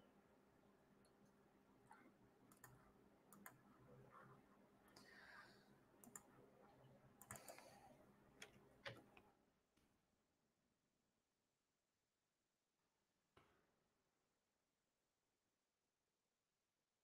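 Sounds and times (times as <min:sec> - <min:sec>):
faint clicks: 0:01.9 - 0:03.6, 0:06.0 - 0:06.3, 0:07.2 - 0:07.8.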